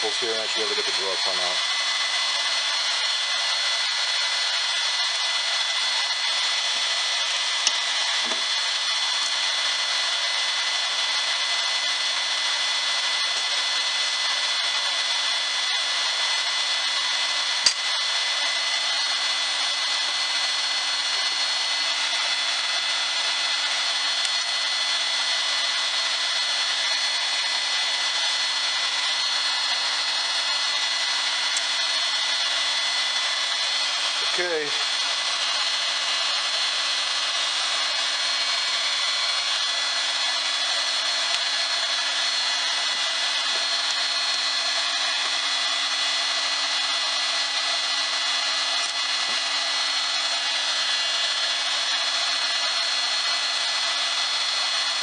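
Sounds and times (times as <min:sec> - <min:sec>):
heat gun blowing air: 0:00.0 - 0:55.0
sharp clicks: 0:17.6 - 0:17.8.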